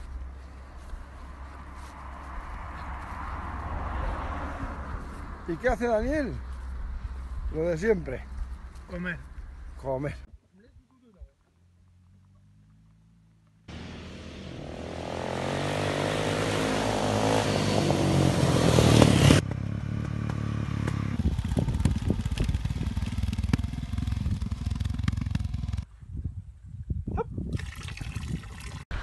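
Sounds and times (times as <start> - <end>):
motorcycle engine accelerating: 11.7 - 25.9.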